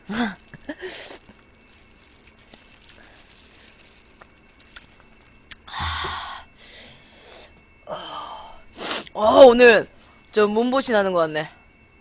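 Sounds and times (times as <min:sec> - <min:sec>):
chewing and sucking: 0:02.2 - 0:05.6.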